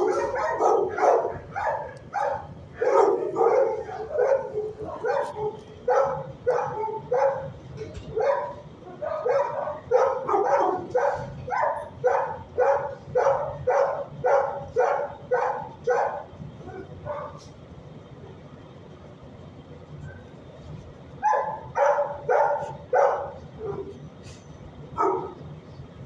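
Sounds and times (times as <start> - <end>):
dog barking: 0.0 - 17.5, 21.2 - 24.0, 25.0 - 25.4.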